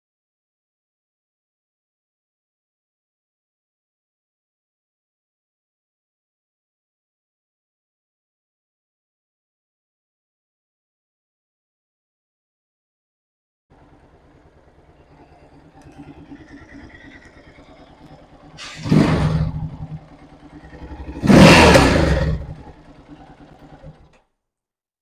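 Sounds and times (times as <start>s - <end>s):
motorcycle engine idling and revving: 13.7s - 24.3s.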